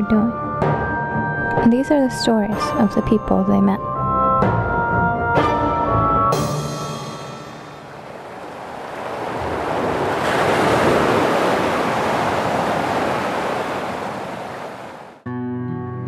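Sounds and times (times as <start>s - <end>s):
ocean waves washing: 6.8s - 15.2s.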